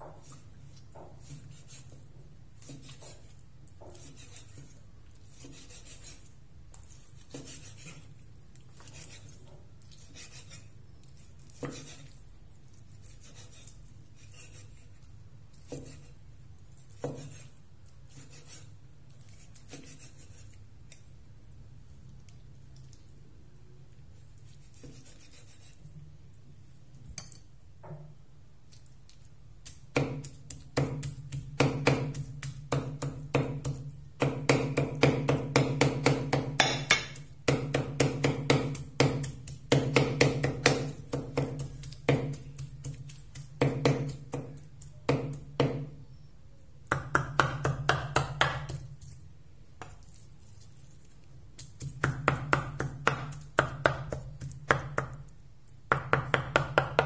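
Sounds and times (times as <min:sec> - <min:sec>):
cleaver chopping meat on wood: 0:29.7 - 0:45.9, 0:46.9 - 0:48.9, 0:51.6 - 0:55.2, 0:55.9 - 0:57.0.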